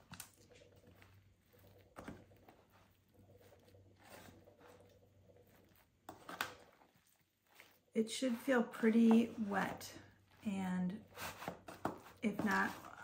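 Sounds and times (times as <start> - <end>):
bread squishing in foil pan: 0.0 - 9.1
spatula scraping foil pan: 2.5 - 13.0.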